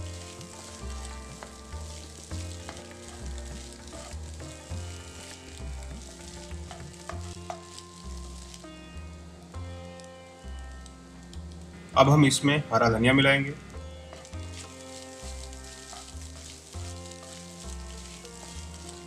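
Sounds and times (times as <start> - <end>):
oil sizzling: 0.0 - 12.4, 13.0 - 19.0
spatula scraping frying pan: 14.1 - 19.0.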